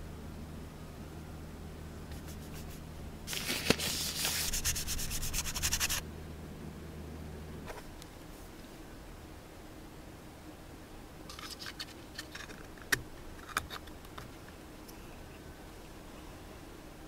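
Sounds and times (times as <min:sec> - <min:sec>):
cloth rubbing plastic pieces: 0:02.2 - 0:06.0.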